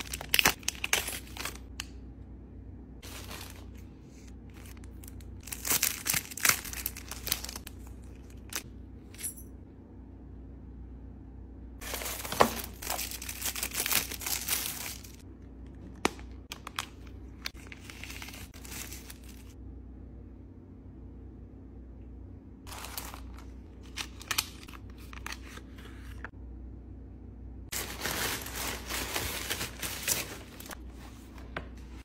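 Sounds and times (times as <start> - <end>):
plastic bags crinkling: 0.0 - 1.7, 3.0 - 3.9, 4.5 - 7.6, 11.8 - 15.2, 16.5 - 19.6, 22.7 - 24.6, 27.7 - 30.8.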